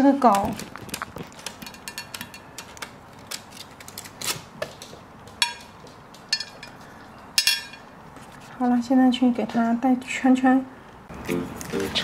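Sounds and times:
small items tapping on glass: 0:01.5 - 0:02.6, 0:05.4 - 0:06.8
ringing glass clink: 0:07.4 - 0:07.9.

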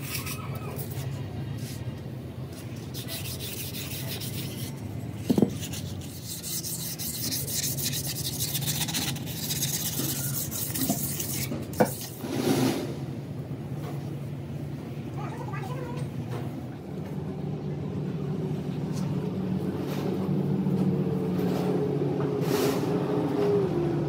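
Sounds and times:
low machine hum: 0:00.0 - 0:24.0
rasping on metal: 0:02.8 - 0:12.2.

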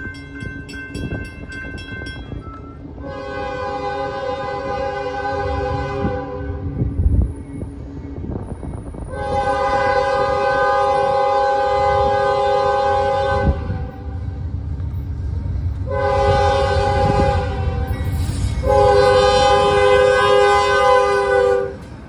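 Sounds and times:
low rumble of train: 0:00.0 - 0:22.0
locomotive air horn: 0:03.0 - 0:06.7, 0:09.0 - 0:14.2, 0:15.9 - 0:18.0, 0:18.6 - 0:21.9.

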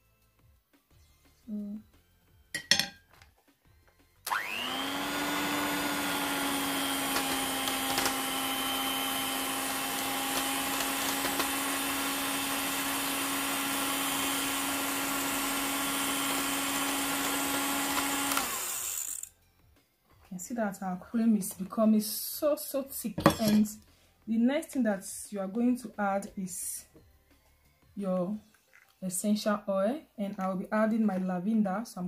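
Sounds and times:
electric hand mixer whining: 0:04.2 - 0:19.3.

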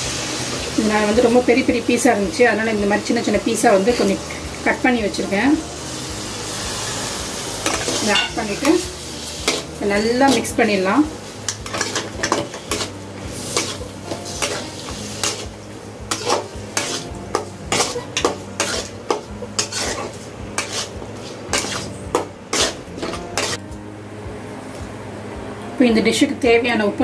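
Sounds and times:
light sizzle: 0:00.0 - 0:25.0
metal spatula scraping a pan: 0:06.5 - 0:10.8, 0:11.5 - 0:23.6.

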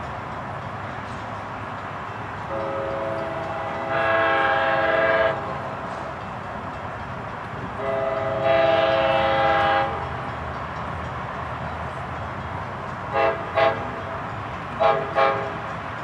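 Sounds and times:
train air horn: 0:02.5 - 0:05.6, 0:07.8 - 0:10.1, 0:13.1 - 0:14.0, 0:14.8 - 0:15.6.

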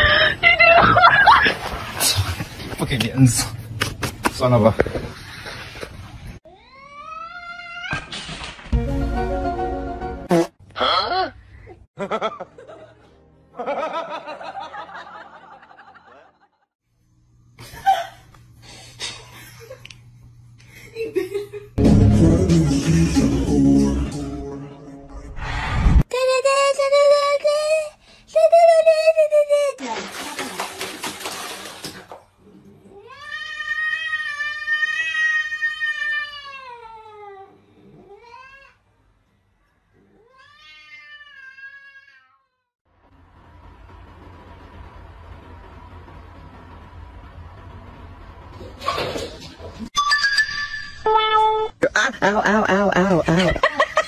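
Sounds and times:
wheezy snickering laugh: 0:51.8 - 0:54.0.

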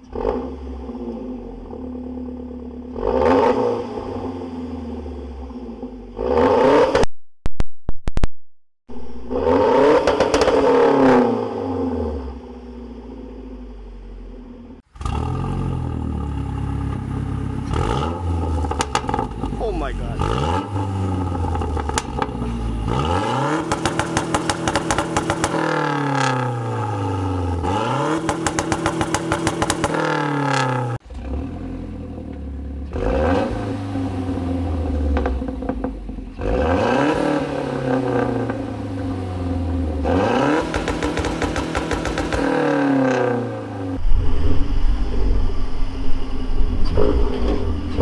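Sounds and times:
car engine revving: 0:00.0 - 0:07.1, 0:08.9 - 0:48.0
rapid stuttering exhaust crackle: 0:14.8 - 0:48.0.

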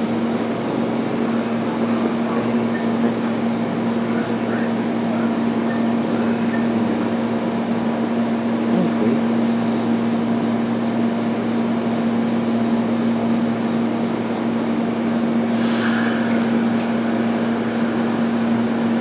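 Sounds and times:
train cars rumbling past: 0:15.4 - 0:19.0
high-pitched squeal: 0:15.5 - 0:19.0.

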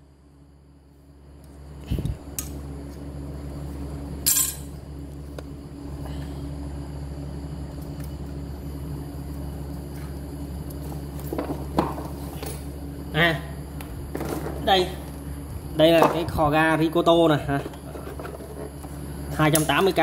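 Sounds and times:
steady low hum: 0:00.0 - 0:20.0
metal tools knocking and clinking: 0:04.3 - 0:04.7.

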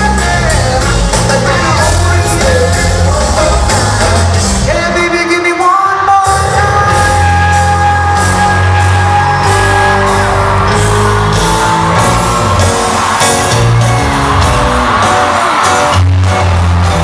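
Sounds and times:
heavy bass: 0:00.0 - 0:05.3, 0:06.2 - 0:17.0
live band playing: 0:00.0 - 0:17.0
drum beat: 0:06.3 - 0:17.0.

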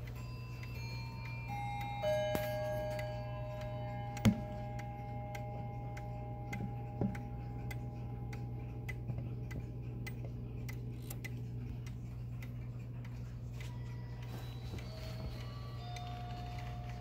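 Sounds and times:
clock chime ringing: 0:00.0 - 0:09.6, 0:13.5 - 0:17.0
wall clock ticking: 0:00.0 - 0:17.0.

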